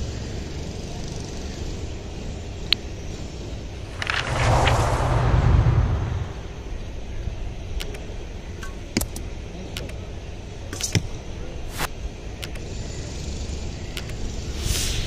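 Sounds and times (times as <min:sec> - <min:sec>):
steady low rumble: 0:03.8 - 0:07.1.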